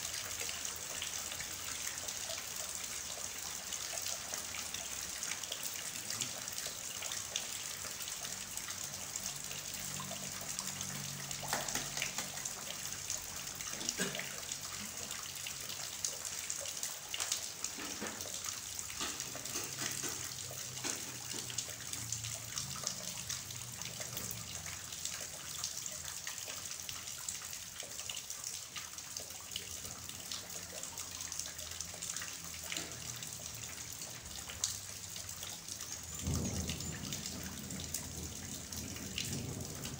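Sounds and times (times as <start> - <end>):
heavy rain falling: 0.0 - 31.4, 32.0 - 39.9
water drops hitting: 11.1 - 12.7.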